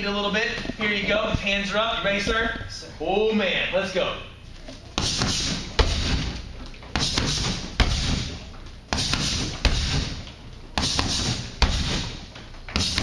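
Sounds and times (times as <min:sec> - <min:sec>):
heavy kick thud: 0:05.0 - 0:06.4, 0:07.0 - 0:10.2, 0:10.8 - 0:12.2, 0:12.8 - 0:13.0
kickboxing strikes landing: 0:05.0 - 0:13.0.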